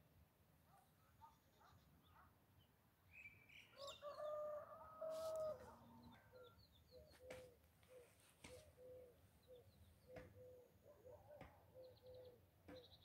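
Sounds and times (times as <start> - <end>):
distant rooster crowing: 3.8 - 6.4
low repeated cooing: 4.2 - 12.8
small birds chirping: 5.4 - 13.0.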